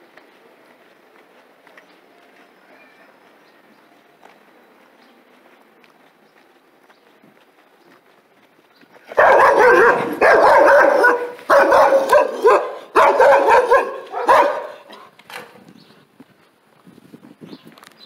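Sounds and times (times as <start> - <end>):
dogs barking rapidly: 9.1 - 15.6.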